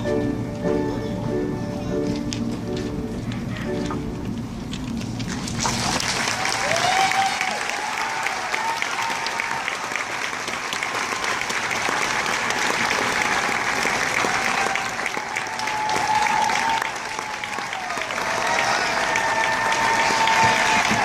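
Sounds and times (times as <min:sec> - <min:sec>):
audience applauding: 0:05.3 - 0:21.0.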